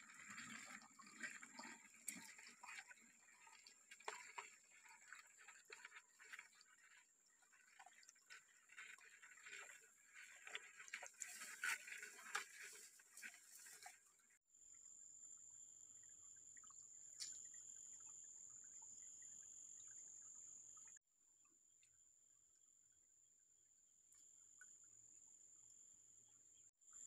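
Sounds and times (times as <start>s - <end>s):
small clicks and drips: 0.0s - 14.4s, 15.8s - 22.0s
stream trickling over rocks: 0.0s - 14.4s.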